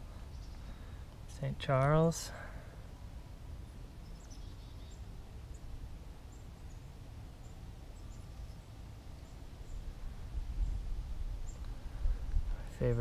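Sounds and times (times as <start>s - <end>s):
bird chirps: 0.1s - 0.9s, 3.6s - 5.7s, 6.3s - 9.9s.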